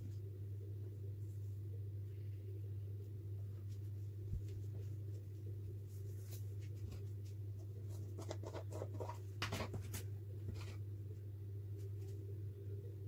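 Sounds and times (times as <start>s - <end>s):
steady low hum: 0.0s - 13.0s
towel rustling and scratching: 3.4s - 10.8s.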